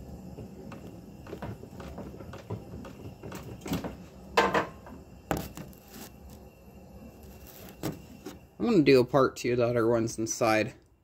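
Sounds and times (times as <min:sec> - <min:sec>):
air conditioner humming: 0:00.0 - 0:11.0
knocks and rattles: 0:00.4 - 0:05.5.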